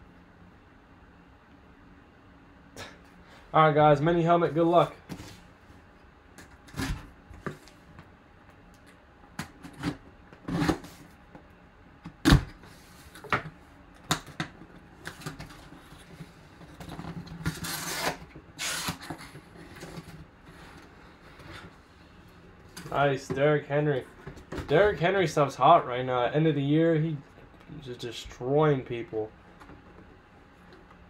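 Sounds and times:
knife slitting packing tape: 0:17.4 - 0:20.1.

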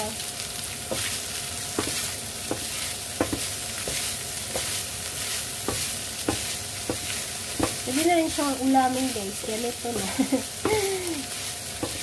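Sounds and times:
meat sizzling in a frying pan: 0:00.0 - 0:12.0
spatula scraping a pan: 0:00.9 - 0:12.0.

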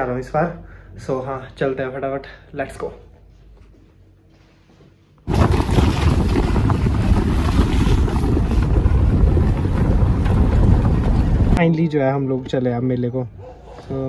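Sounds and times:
car rumbling on rough road: 0:05.3 - 0:11.6
wind buffeting microphone: 0:05.3 - 0:11.6.

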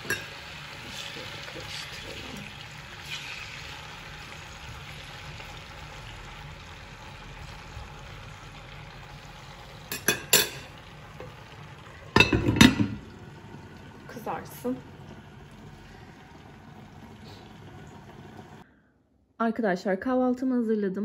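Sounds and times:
pan clattering while stirred: 0:00.0 - 0:03.5, 0:09.9 - 0:11.4, 0:12.0 - 0:13.2
potatoes sizzling in oil: 0:00.0 - 0:18.6.

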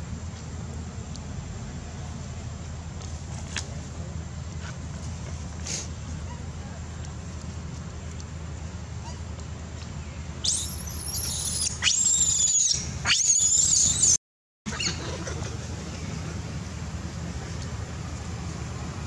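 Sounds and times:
monkey screaming: 0:10.4 - 0:15.4.

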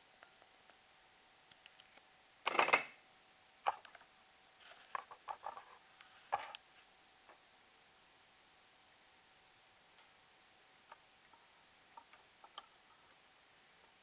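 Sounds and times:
rustling of handling: 0:04.6 - 0:07.0.

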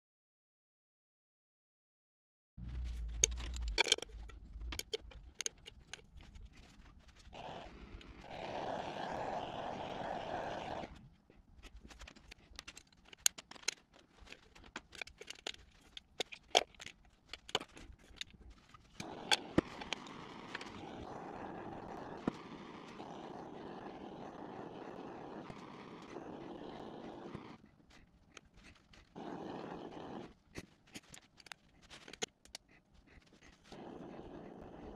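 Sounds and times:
crayons clicking against tin: 0:03.2 - 0:08.2, 0:11.3 - 0:21.1, 0:29.9 - 0:33.9.

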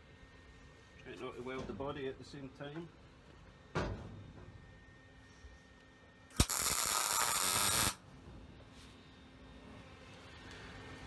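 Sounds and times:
electric arc welder crackling: 0:06.3 - 0:08.0.

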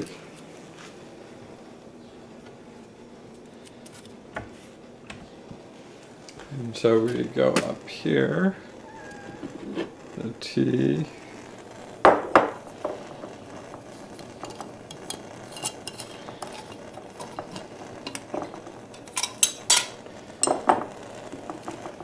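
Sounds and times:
metal and glass clinking: 0:14.4 - 0:20.9.

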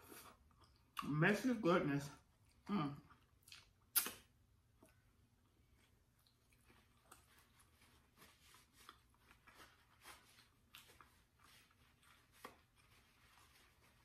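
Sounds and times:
paper napkin rustling: 0:06.7 - 0:14.0.

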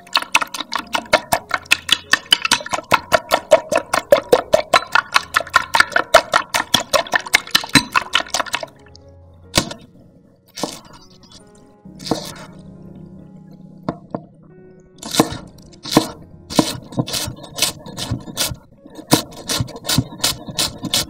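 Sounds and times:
knife chopping on wooden board: 0:15.0 - 0:21.0.

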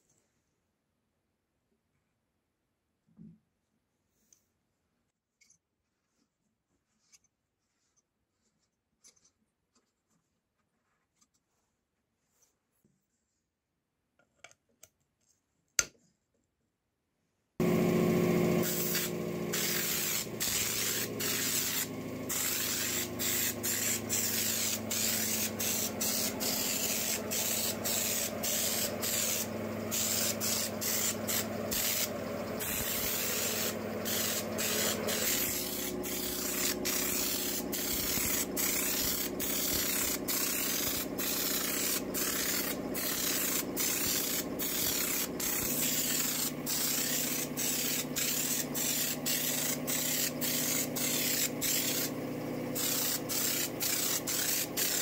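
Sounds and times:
spray gun hissing: 0:17.6 - 0:55.0.

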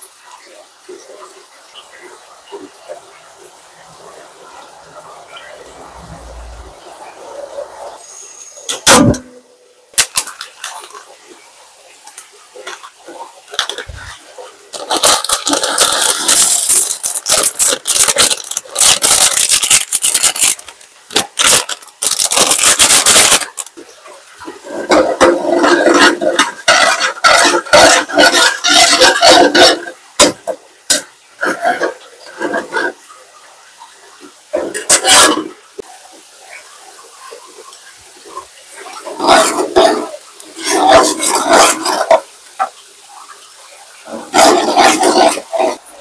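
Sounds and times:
utensils and dishes clattering: 0:13.5 - 0:23.7, 0:24.6 - 0:33.0, 0:34.6 - 0:35.6, 0:38.9 - 0:42.7, 0:44.1 - 0:46.0
dense scraping and rubbing: 0:39.0 - 0:42.3, 0:44.1 - 0:46.0.

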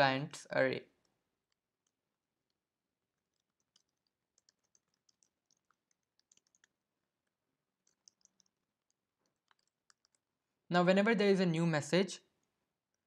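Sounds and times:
typing on computer keyboard: 0:01.5 - 0:10.3.

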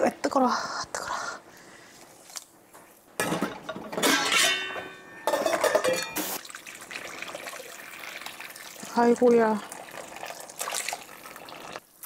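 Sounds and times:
metal pot clinking: 0:03.2 - 0:06.4.

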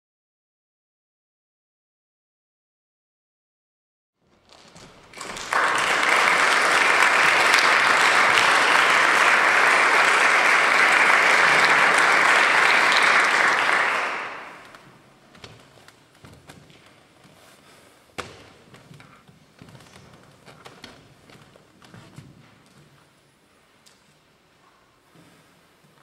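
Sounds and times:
audience applauding: 0:05.0 - 0:14.9.

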